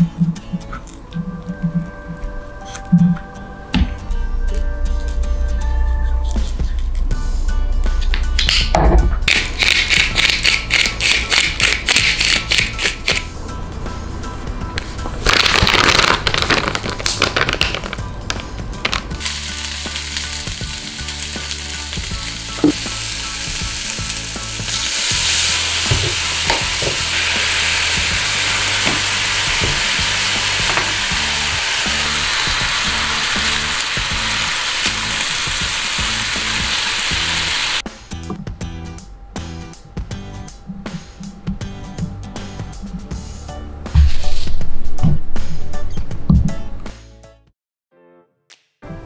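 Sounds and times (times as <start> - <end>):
meat sizzling in a frying pan: 19.2 - 37.8.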